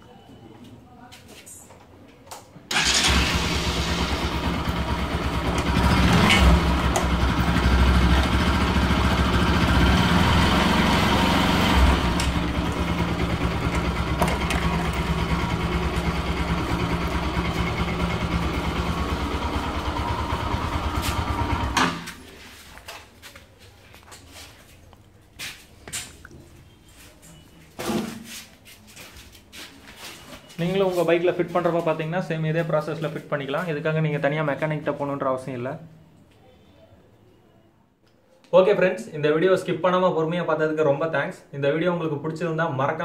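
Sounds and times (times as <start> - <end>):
motorcycle engine running: 2.8 - 22.1.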